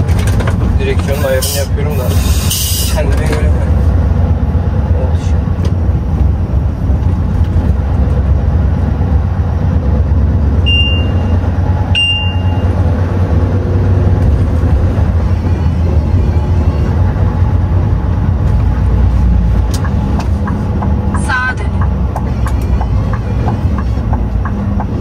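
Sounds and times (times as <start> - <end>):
truck engine and road drone: 0.0 - 25.0
short high beeps: 10.6 - 12.8.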